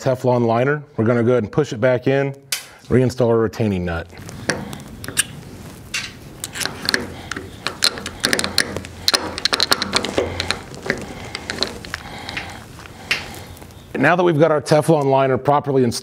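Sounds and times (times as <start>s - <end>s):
light metal clicks and taps: 6.0s - 12.5s.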